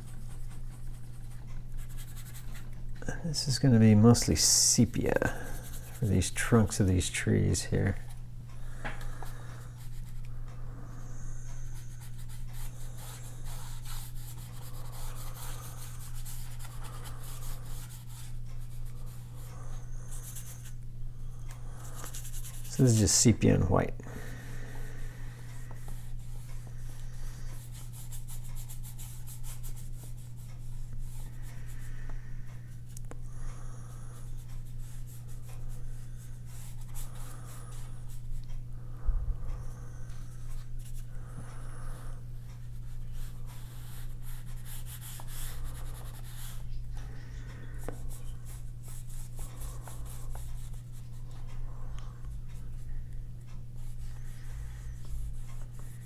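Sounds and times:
paintbrush scrubbing on paper: 3.3 - 7.0, 11.7 - 19.4, 48.0 - 51.1
low hum: 30.4 - 43.5.

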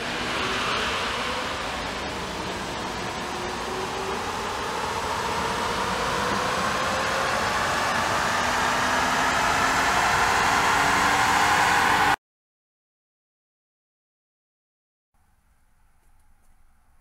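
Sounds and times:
faint rising whine: 0.0 - 12.2.

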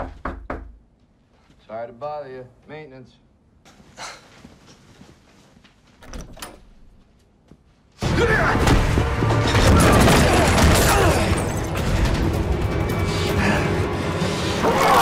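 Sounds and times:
loud film score music: 8.0 - 15.0.

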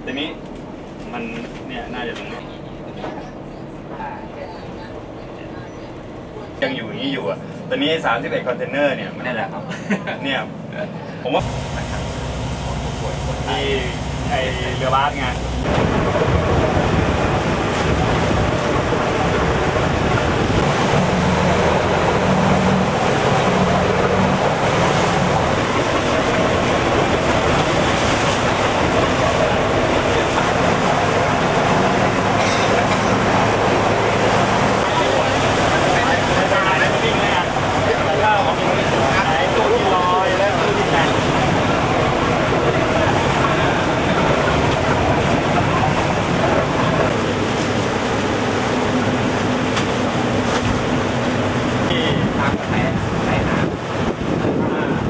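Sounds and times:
motorboat engine humming: 0.0 - 55.0
sea water rushing: 11.0 - 55.0.

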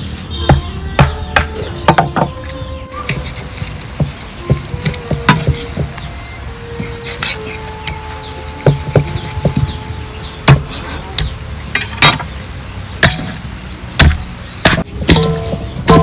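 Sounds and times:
cleaver chopping on cutting board: 3.1 - 6.0.

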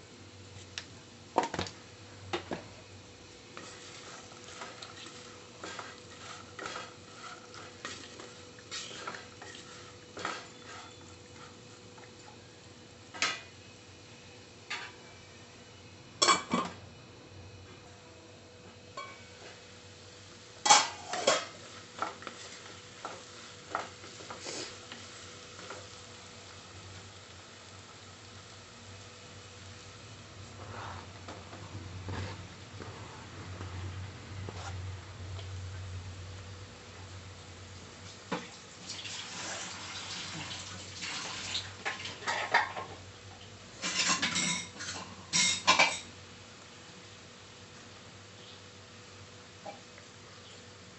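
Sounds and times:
faint steady sizzle: 0.0 - 50.9
wooden spatula scraping a pan: 3.5 - 12.0, 20.9 - 25.9, 30.4 - 34.8, 39.2 - 39.9
spatula scraping metal saucepan: 3.6 - 11.6.

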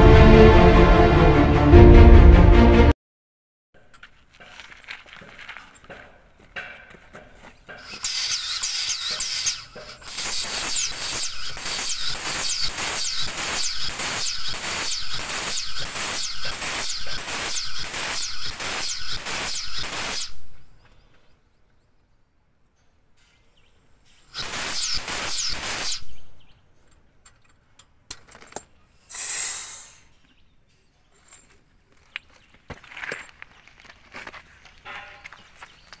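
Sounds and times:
air pump pulsing with hissing strokes: 7.7 - 20.4, 24.3 - 26.2
short hiss of air: 24.1 - 26.2, 29.0 - 30.1.

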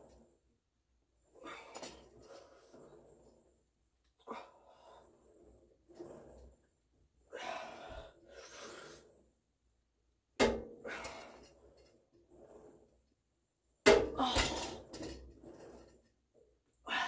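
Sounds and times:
person breathing hard: 7.3 - 9.2.

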